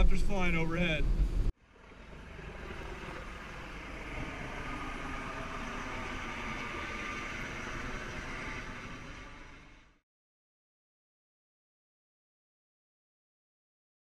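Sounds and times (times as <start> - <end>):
helicopter rotor and engine drone: 1.2 - 10.0.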